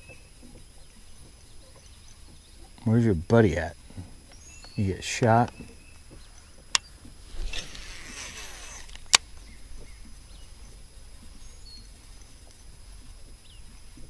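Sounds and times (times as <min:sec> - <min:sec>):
faint bird chirps: 0:00.0 - 0:14.0
fishing reel spool whirring: 0:06.5 - 0:11.0
reel click: 0:06.7 - 0:09.3.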